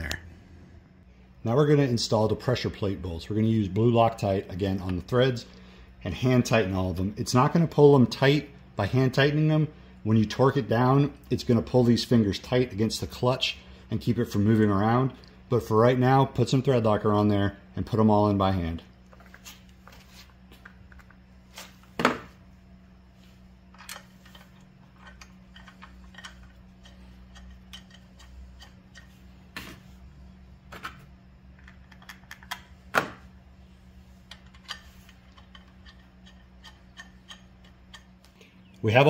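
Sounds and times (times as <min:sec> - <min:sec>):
low steady hum: 0:00.0 - 0:39.0
metallic clicks of bolts: 0:34.3 - 0:38.1.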